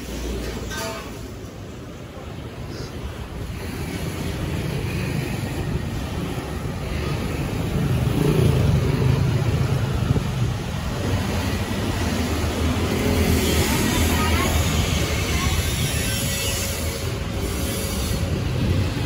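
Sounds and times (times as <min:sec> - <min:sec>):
road traffic: 0:00.0 - 0:19.0
vehicle engine approaching: 0:04.4 - 0:14.3.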